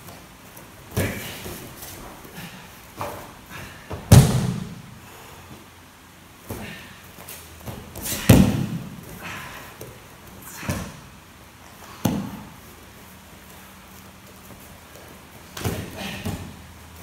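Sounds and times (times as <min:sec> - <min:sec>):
body thudding on mats: 0:03.0 - 0:04.8, 0:07.6 - 0:09.1.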